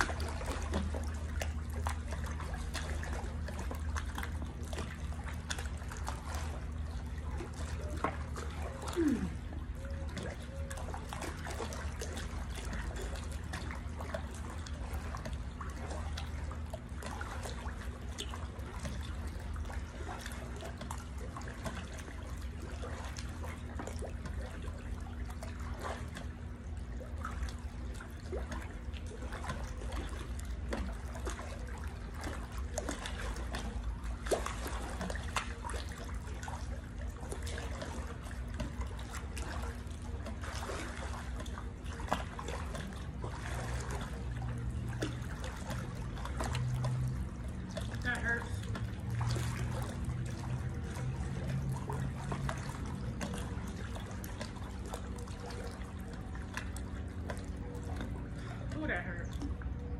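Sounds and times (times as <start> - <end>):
pool water splashing: 0.0 - 59.9
steady low hum: 0.0 - 59.9.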